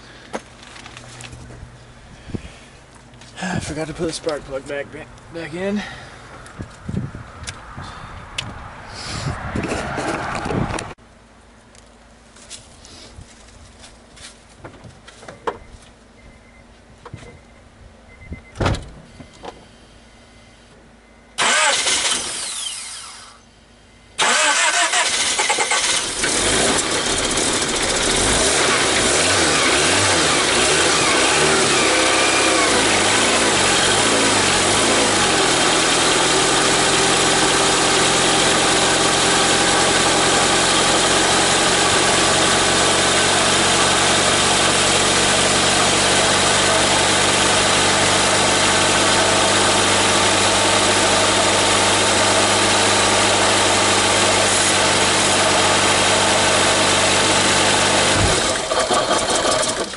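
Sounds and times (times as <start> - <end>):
car engine idling: 21.4 - 59.9.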